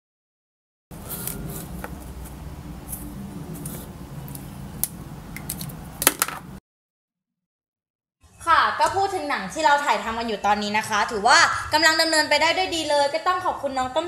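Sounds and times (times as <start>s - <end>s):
steady low hum: 0.9s - 6.6s.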